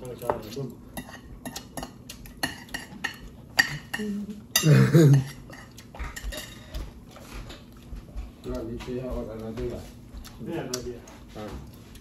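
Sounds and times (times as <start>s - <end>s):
cutlery clinking on plates: 0.2s - 7.7s.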